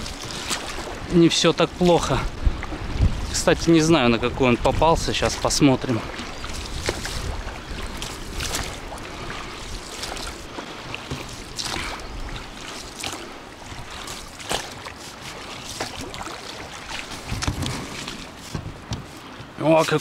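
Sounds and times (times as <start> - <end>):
fish splashing: 0.0 - 1.2, 5.4 - 18.6
wind rumbling on microphone: 0.0 - 19.6
water lapping: 0.0 - 20.0.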